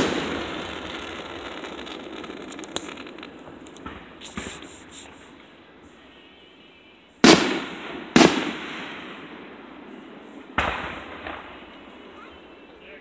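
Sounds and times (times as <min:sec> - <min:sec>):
firework shells bursting: 0:00.0 - 0:05.5.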